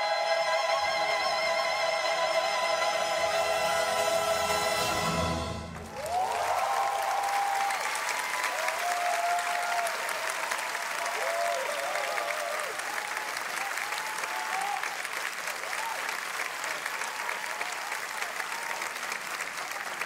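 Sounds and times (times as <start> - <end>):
orchestra and choir chord: 0.0 - 6.0
audience applause: 2.8 - 20.0
audience cheering and whooping: 5.7 - 20.0.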